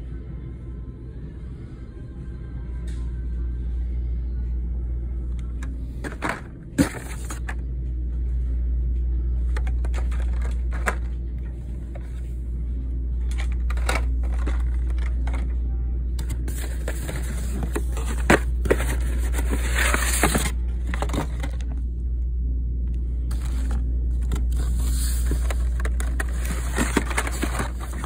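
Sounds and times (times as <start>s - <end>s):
plastic packaging clicks and rustles: 23.3s - 28.0s.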